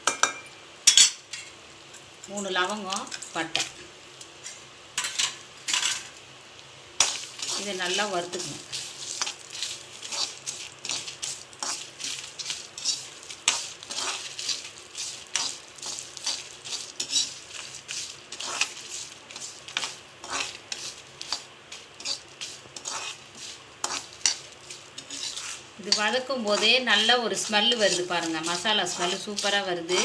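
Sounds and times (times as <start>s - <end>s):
spices sizzling in oil: 0.0s - 30.0s
metal spoon scraping a pan: 7.0s - 30.0s.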